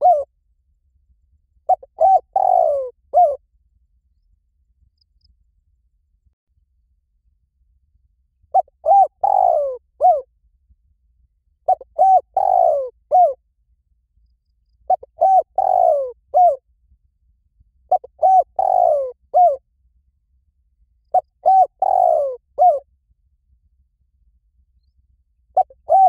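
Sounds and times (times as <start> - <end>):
dove cooing: 0.0 - 0.3, 1.7 - 3.4, 8.5 - 10.3, 11.7 - 13.4, 14.9 - 16.6, 17.9 - 19.6, 21.1 - 22.8, 25.6 - 26.0.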